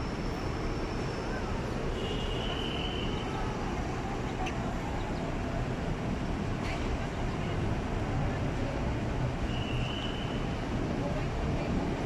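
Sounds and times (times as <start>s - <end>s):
road vehicles idling and passing: 0.0s - 12.0s.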